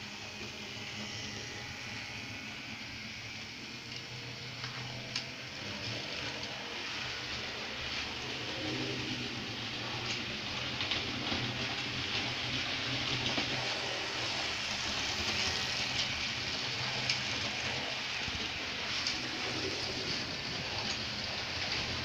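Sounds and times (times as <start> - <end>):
low motor hum: 0.0 - 22.0
model train wheels rattling: 6.1 - 22.0.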